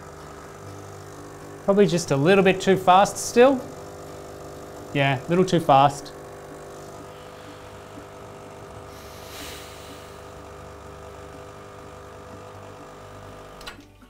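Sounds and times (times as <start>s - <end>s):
espresso machine pump humming: 0.0s - 13.7s
brief hiss: 8.9s - 10.4s.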